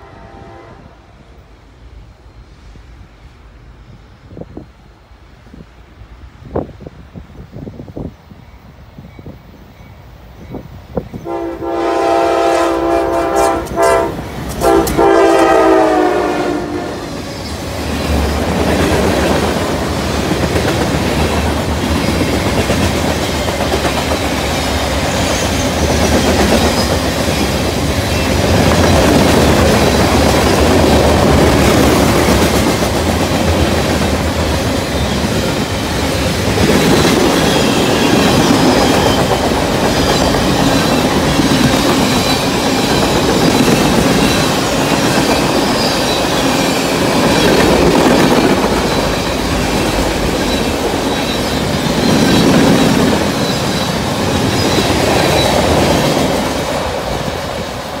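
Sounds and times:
wheels clickety-clack over rail joints: 17.2s - 58.0s.

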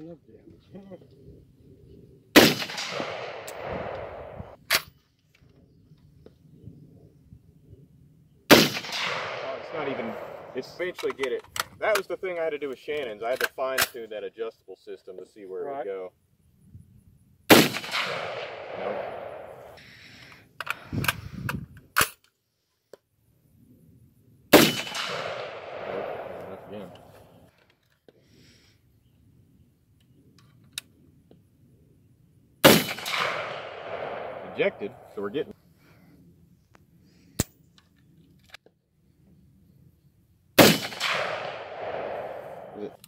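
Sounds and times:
loud gunshot: 2.4s - 4.6s, 8.5s - 10.8s, 17.5s - 19.8s, 24.5s - 27.0s, 32.6s - 35.0s, 40.6s - 43.0s
rifle metallic clicks: 2.4s - 5.0s, 8.5s - 12.0s, 32.7s - 35.0s, 40.6s - 43.0s.

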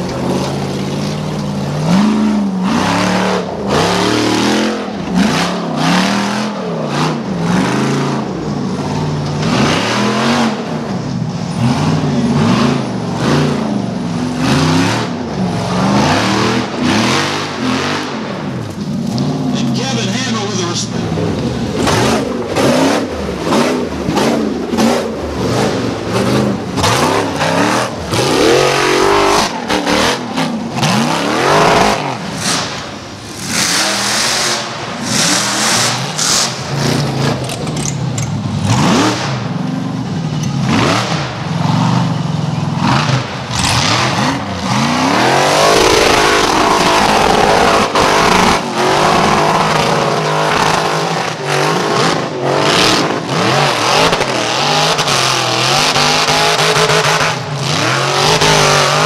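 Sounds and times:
tyres spinning in dirt: 0.0s - 5.1s
buggy engines revving hard: 0.0s - 59.0s.

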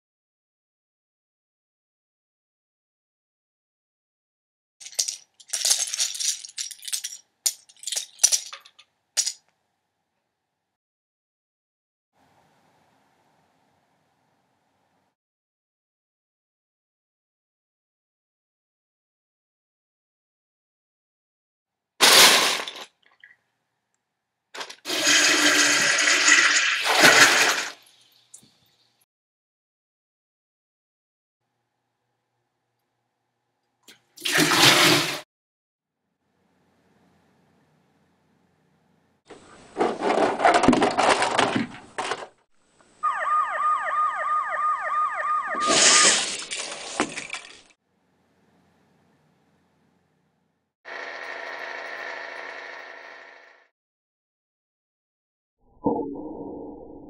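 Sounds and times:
siren with falling sweeps: 43.0s - 46.0s, 55.9s - 57.0s.

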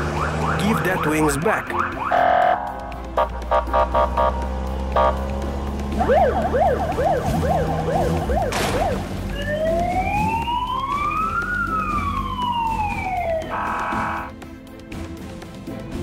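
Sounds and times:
police siren yelping and wailing: 0.0s - 4.3s, 6.0s - 14.3s.

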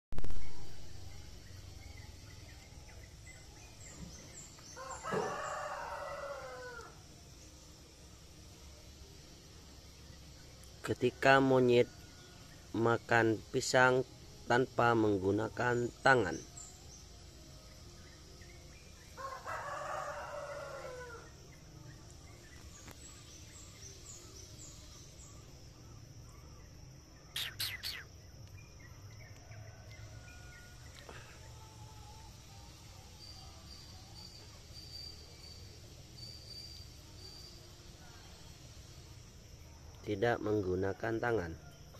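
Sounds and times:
faint high chirps: 0.1s - 41.0s
rooster crowing: 4.6s - 7.0s, 19.2s - 21.4s
short high bird chirps: 27.3s - 28.1s.

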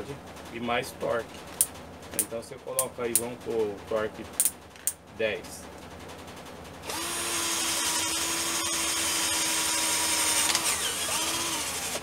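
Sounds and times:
cordless drill motor whine: 6.8s - 12.0s
drill bit cutting wood: 6.8s - 12.0s.

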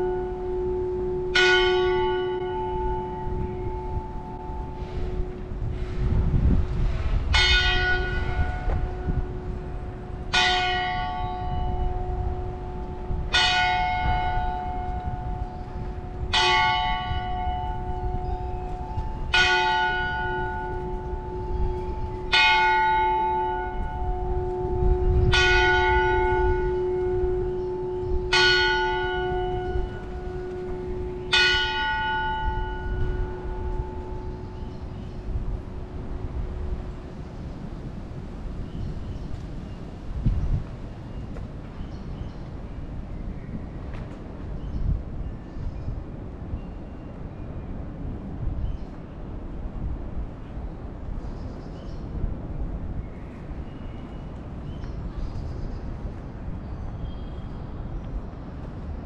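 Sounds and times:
church bell tolling: 0.0s - 5.7s, 7.2s - 35.8s
steady low rumble: 2.7s - 22.4s.

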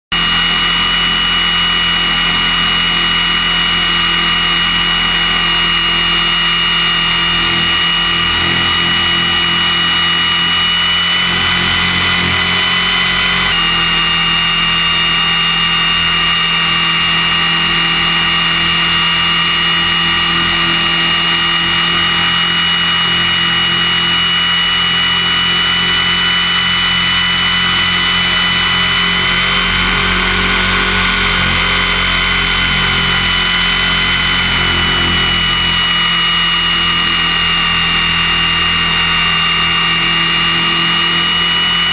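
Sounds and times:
motor and gears whining: 0.1s - 41.9s
rotors buzzing: 0.1s - 41.9s.

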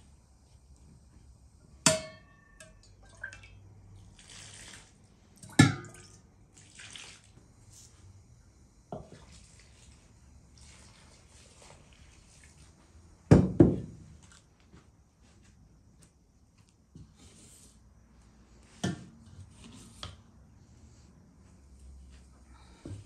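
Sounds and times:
water pouring and splashing: 2.9s - 7.4s.

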